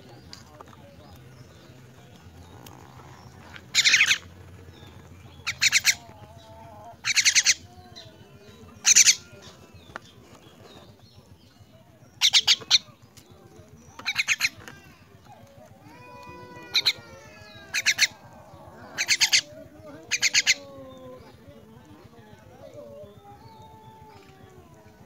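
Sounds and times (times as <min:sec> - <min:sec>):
young myna begging calls: 0:05.0 - 0:09.7, 0:14.0 - 0:21.4.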